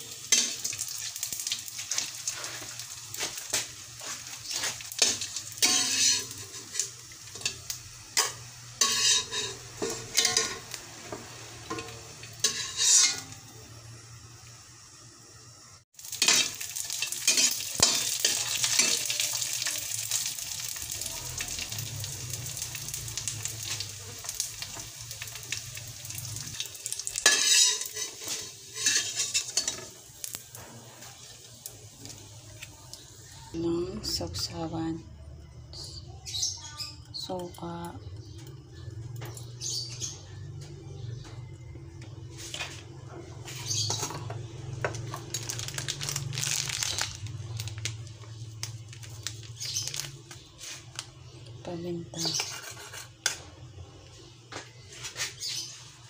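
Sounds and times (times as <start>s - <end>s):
fish sizzling in oil: 0.0s - 34.7s, 42.1s - 53.4s
utensil scraping a wok: 1.4s - 13.5s, 16.1s - 20.7s, 23.5s - 32.7s, 42.3s - 46.2s, 52.2s - 53.4s.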